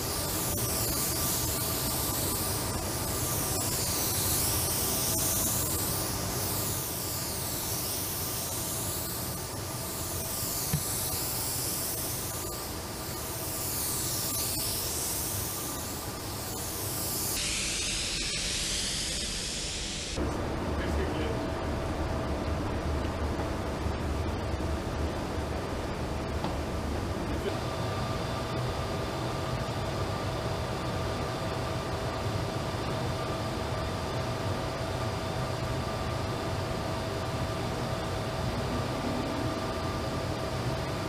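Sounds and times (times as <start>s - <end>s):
paint spray gun hissing: 0.0s - 20.2s, 37.9s - 41.0s.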